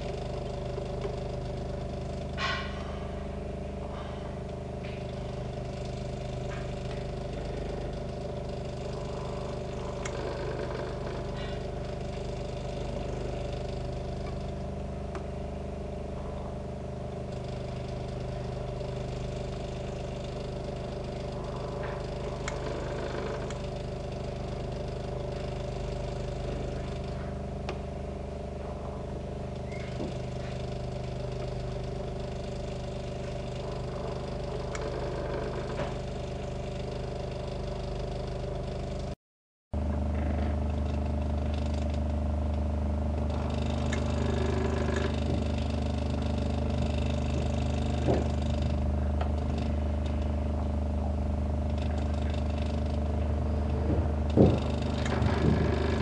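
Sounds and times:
sewing machine running: 5.0 - 14.6, 17.2 - 27.2, 29.3 - 39.1, 43.2 - 50.3, 51.6 - 56.0.

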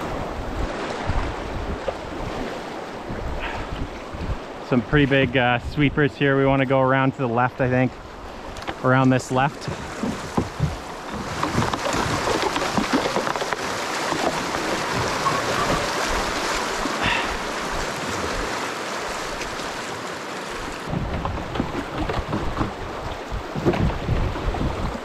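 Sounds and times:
paddle strokes in water: 0.0 - 5.4, 7.3 - 25.0
wind buffeting microphone: 0.0 - 6.6, 20.6 - 25.0
creek water rushing: 0.0 - 25.0.

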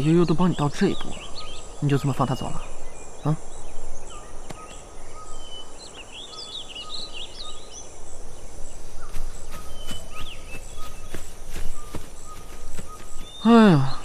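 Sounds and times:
small birds chirping: 0.0 - 14.0
steady background hiss: 0.0 - 14.0.

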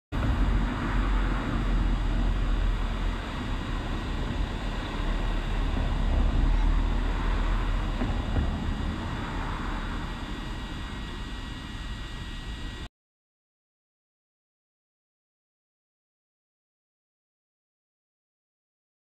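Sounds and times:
drone propellers and motors: 0.2 - 12.9.

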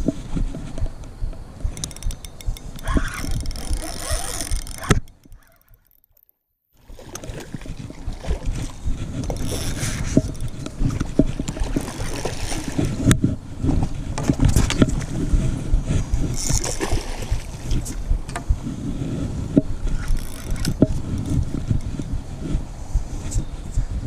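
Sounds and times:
wind rumbling on microphone: 0.0 - 5.8, 6.8 - 24.0
spinning reel cranking: 1.7 - 6.3, 9.2 - 10.6, 20.0 - 21.4.

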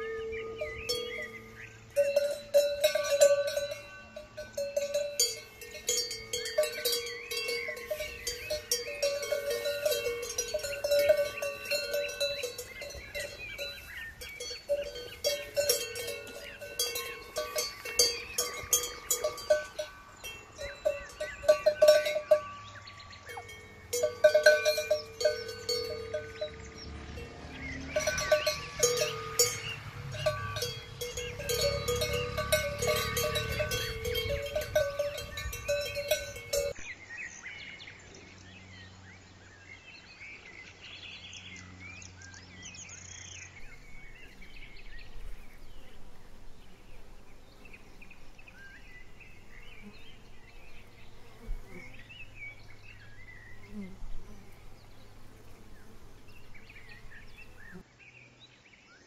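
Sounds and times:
cowbells clanking: 0.0 - 36.8, 43.6 - 57.8.

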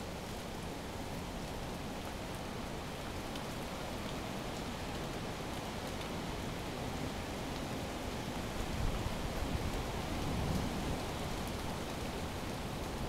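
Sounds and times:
rain falling: 0.0 - 13.0
wind rumble on microphone: 8.6 - 11.8.

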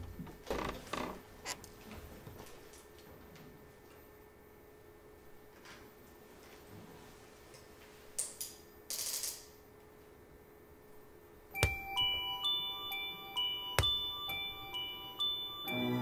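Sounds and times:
tinkling bell-like melody: 11.6 - 16.0.

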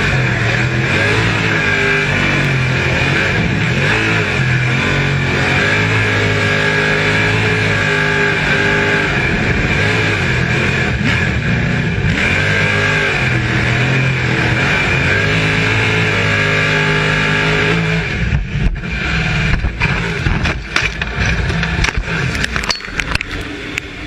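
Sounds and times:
race car engine revving: 0.0 - 24.0
car knocks and thumps: 18.3 - 22.7.

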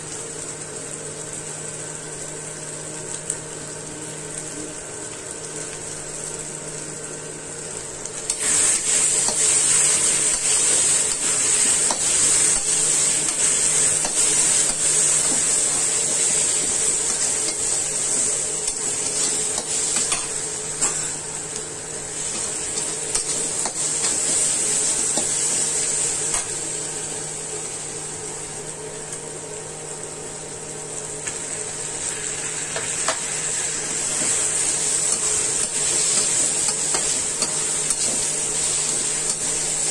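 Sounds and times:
masala sizzling in hot oil: 0.0 - 39.9.

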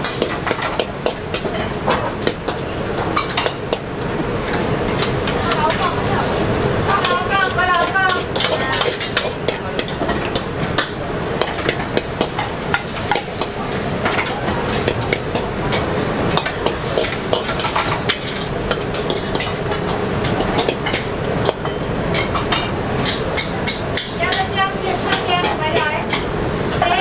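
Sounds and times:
noodles sizzling in a wok: 0.0 - 27.0
spatula scraping a wok: 7.0 - 26.9.

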